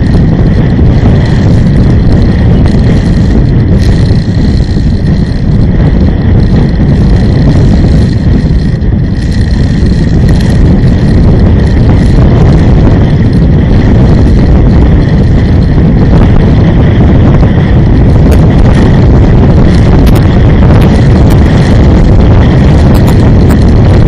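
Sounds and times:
vehicle engine and road noise: 0.0 - 24.0.

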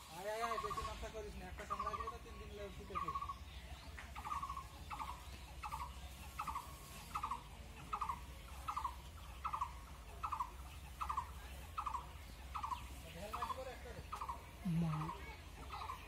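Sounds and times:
trilled animal call: 4.2 - 16.0.

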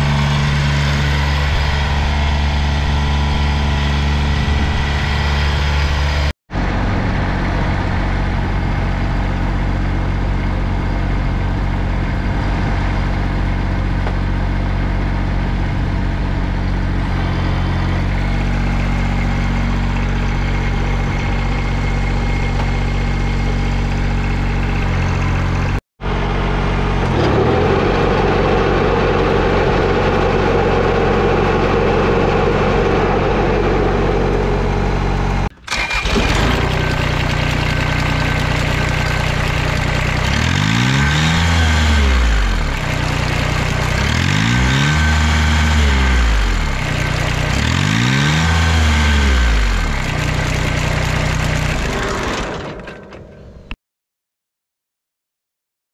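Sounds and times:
tractor diesel engine running: 0.0 - 53.8.

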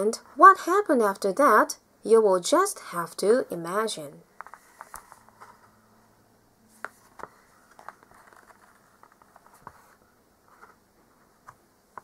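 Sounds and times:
book handling clicks and rustles: 4.4 - 5.8, 6.7 - 12.0.

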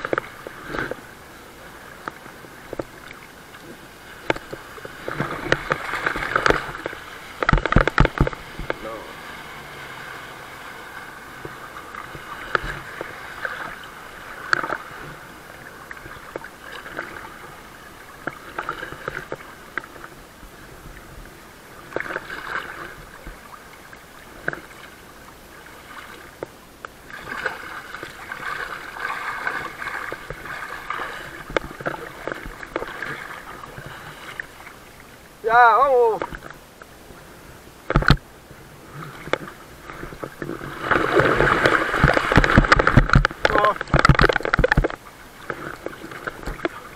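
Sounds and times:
jet ski engine: 0.0 - 21.9
water lapping and splashing: 0.0 - 46.9.

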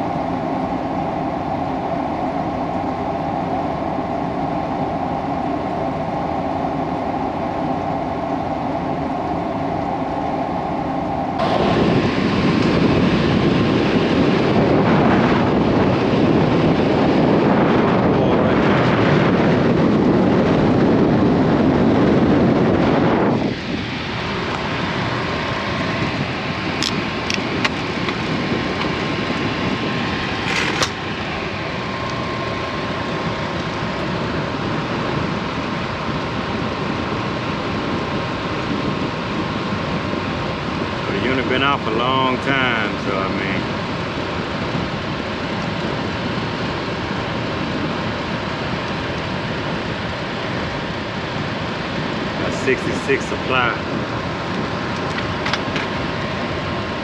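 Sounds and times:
air conditioner hum: 0.0 - 57.0
blower air rush: 0.0 - 57.0.

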